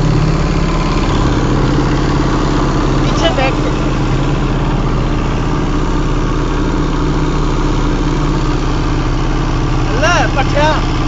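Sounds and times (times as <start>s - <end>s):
water rushing past hull: 0.0s - 6.5s
boat engine running: 0.0s - 11.0s.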